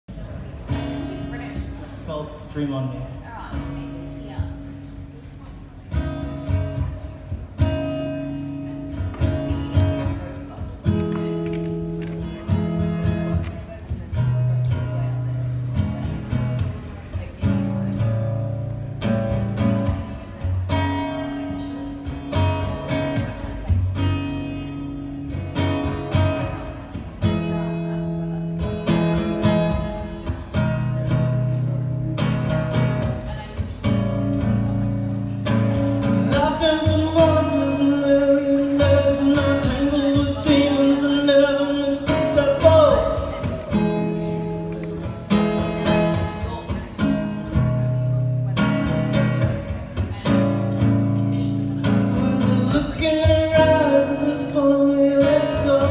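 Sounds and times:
acoustic guitar strumming: 0:00.1 - 0:55.9
man singing: 0:35.7 - 0:44.2, 0:51.4 - 0:55.9.

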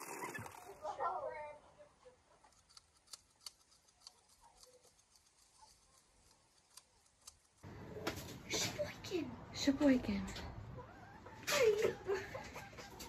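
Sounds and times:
hoof clippers clicking: 0:02.4 - 0:07.6.

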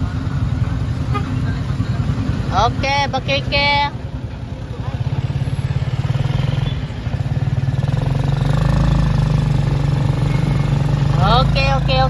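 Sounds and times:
motorcycle engine throbbing: 0:00.0 - 0:12.0.

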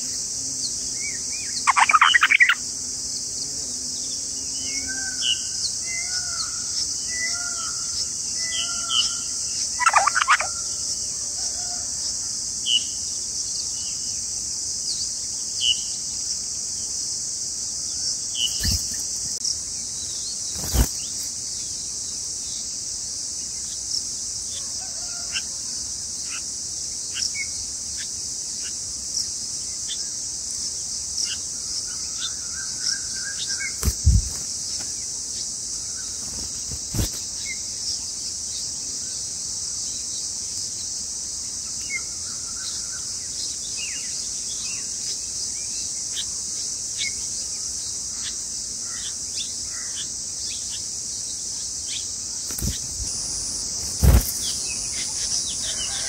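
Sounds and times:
insects droning: 0:00.0 - 0:56.0
bird chirps: 0:01.4 - 0:02.6, 0:09.8 - 0:10.7.

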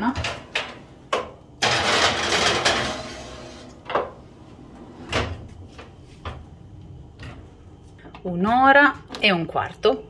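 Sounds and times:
oven door shutting: 0:00.0 - 0:05.6.

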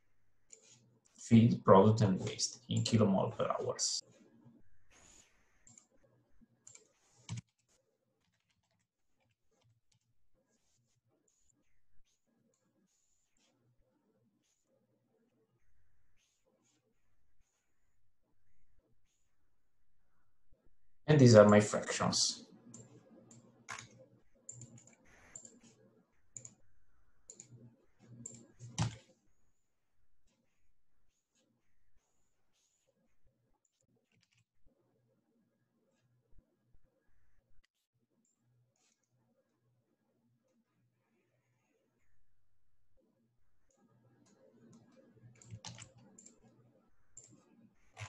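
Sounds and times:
computer mouse clicks: 0:05.0 - 0:05.9, 0:06.6 - 0:10.1, 0:22.7 - 0:26.6, 0:27.2 - 0:29.1, 0:33.7 - 0:34.4, 0:43.6 - 0:46.6, 0:47.2 - 0:48.0
keyboard keystrokes: 0:28.3 - 0:29.0, 0:45.4 - 0:46.0.

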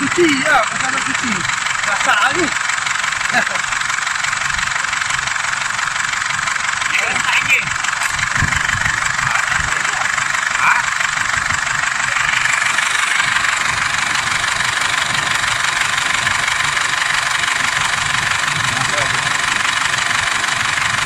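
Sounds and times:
diesel engine idling: 0:00.0 - 0:21.0.

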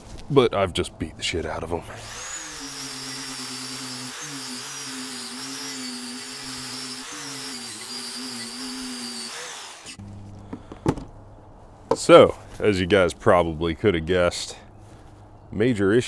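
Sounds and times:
angle grinder wire brush on metal: 0:01.9 - 0:10.0.

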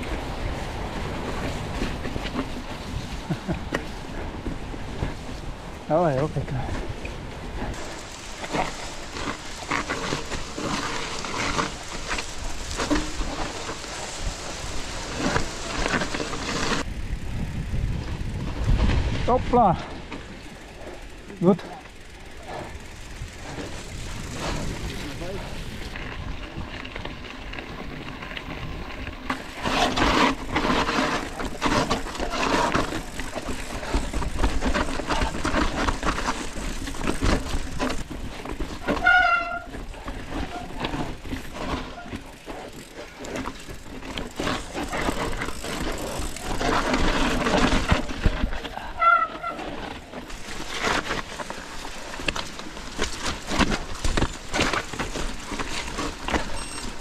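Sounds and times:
bike frame and chain rattling: 0:00.0 - 0:57.0
short wavering squeal: 0:56.5 - 0:57.0.

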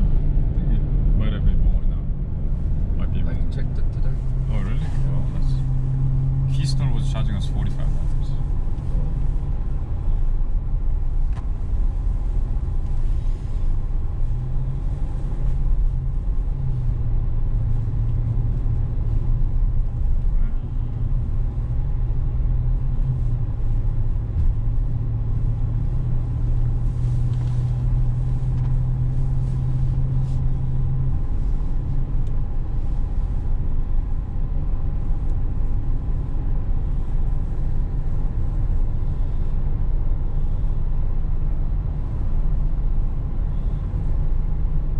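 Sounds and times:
road and engine rumble in car: 0:00.0 - 0:44.9.

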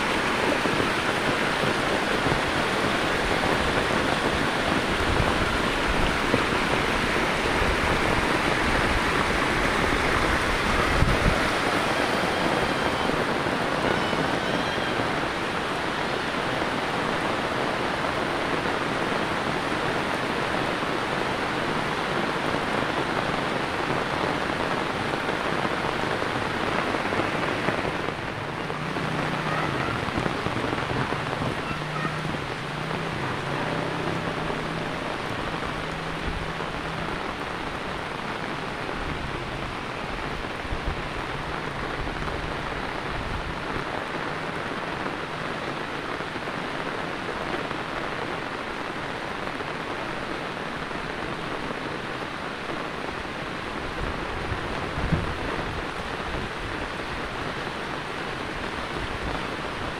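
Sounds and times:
heavy rain on a street: 0:00.0 - 0:59.9.

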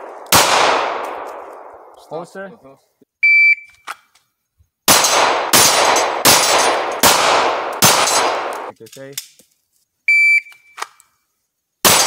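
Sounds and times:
handgun shots ringing: 0:00.0 - 0:01.7, 0:04.9 - 0:08.7.

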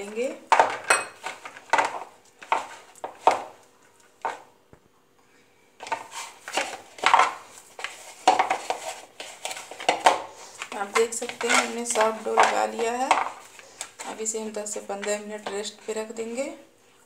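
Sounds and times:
hands kneading dough: 0:00.0 - 0:04.8, 0:05.8 - 0:17.0
bowl and bangles clinking: 0:00.8 - 0:01.2.

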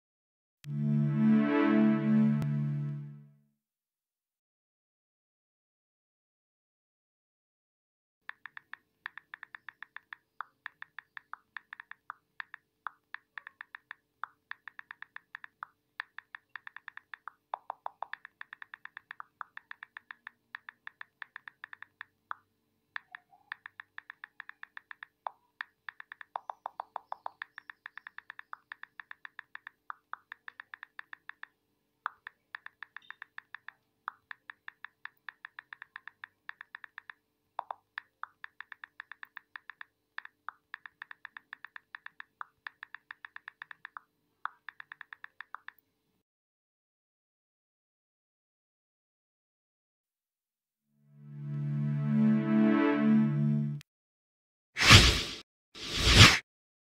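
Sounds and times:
phone keyboard clicks: 0:08.3 - 0:22.4, 0:23.0 - 0:45.8.

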